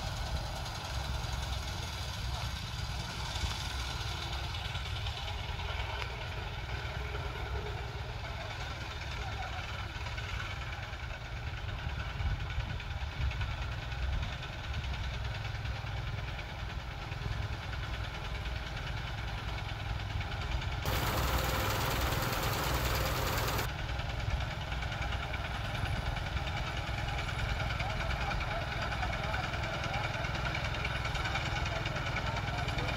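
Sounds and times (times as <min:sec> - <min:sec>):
harvester engine rumbling: 0:00.0 - 0:32.9
loud rushing hiss: 0:20.9 - 0:23.7.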